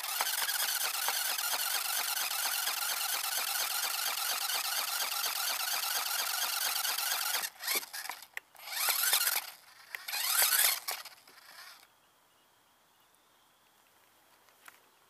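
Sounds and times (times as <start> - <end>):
small motor squealing whir: 0.0 - 11.9.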